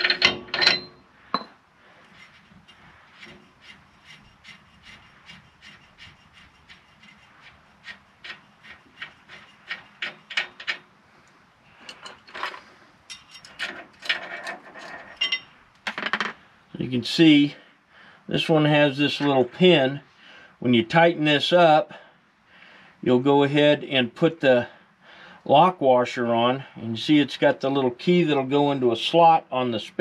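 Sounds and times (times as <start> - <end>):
metal scraping: 0.0 - 16.4.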